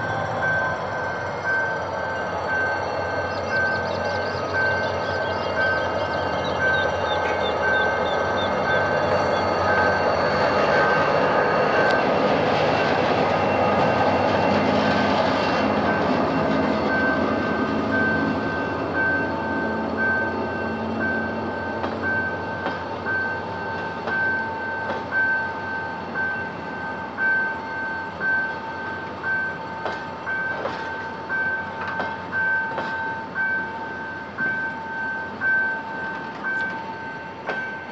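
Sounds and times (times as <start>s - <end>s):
diesel locomotive rumble: 0.0s - 37.9s
train wheels clacking over rail joints: 31.8s - 33.1s.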